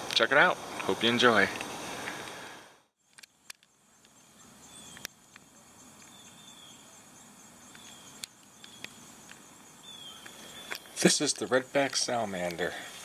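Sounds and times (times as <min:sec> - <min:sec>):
sharp clicks: 0:03.0 - 0:04.2, 0:04.9 - 0:06.2, 0:07.7 - 0:09.4
high falling chirp: 0:03.3 - 0:05.3, 0:05.9 - 0:12.3.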